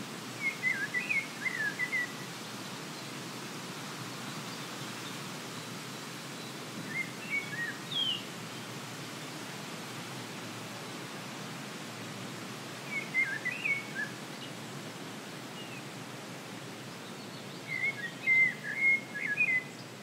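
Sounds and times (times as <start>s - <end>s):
songbird chirping: 6.4s - 8.3s, 12.8s - 14.6s, 16.8s - 20.0s.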